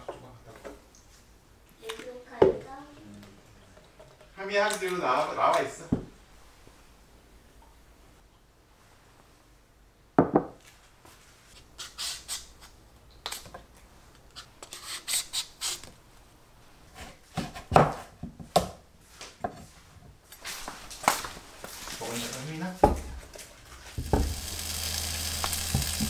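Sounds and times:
peeler scraping squash: 0:11.8 - 0:12.7, 0:14.4 - 0:15.9.

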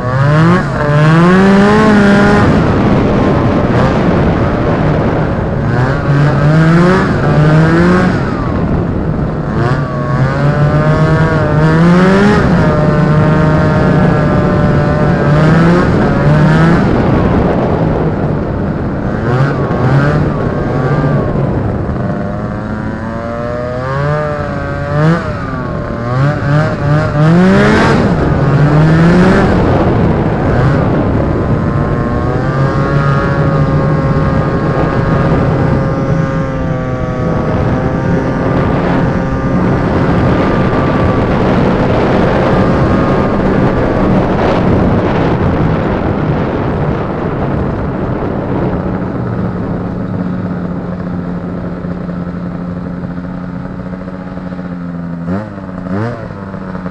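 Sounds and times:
snowmobile engine revving: 0:00.0 - 0:56.9.

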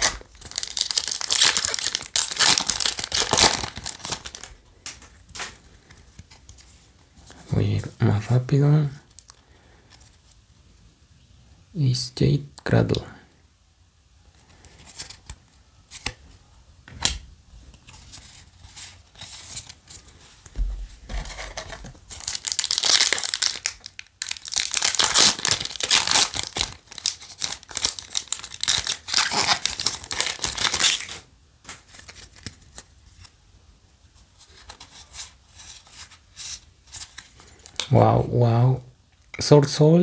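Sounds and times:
foil wrapper tearing and crinkling: 0:00.0 - 0:04.5, 0:22.1 - 0:31.2
cards rustling: 0:00.0 - 0:07.5, 0:21.2 - 0:33.3.

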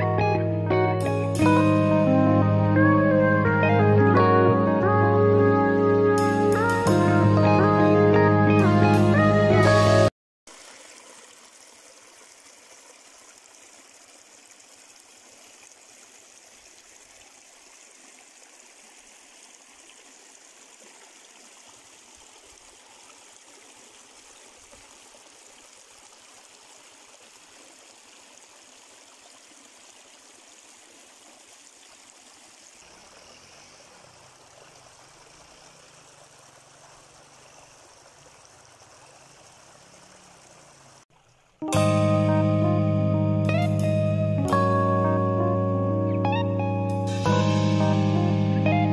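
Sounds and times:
stream splashing over rocks: 0:10.5 - 0:41.7.

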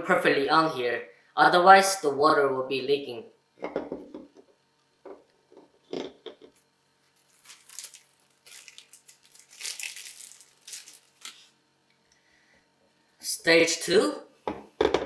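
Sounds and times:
plastic bag crinkling: 0:07.1 - 0:11.5.

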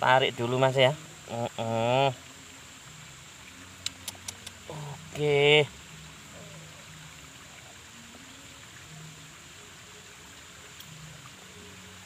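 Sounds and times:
outdoor hiss: 0:00.0 - 0:12.0
water trickling around hand: 0:00.0 - 0:12.0.

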